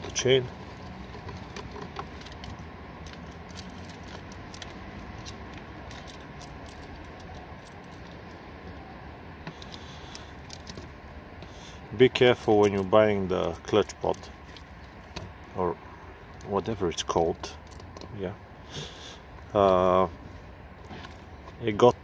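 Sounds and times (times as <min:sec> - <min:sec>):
saw chain links clinking: 0:02.1 - 0:08.4, 0:12.3 - 0:14.6.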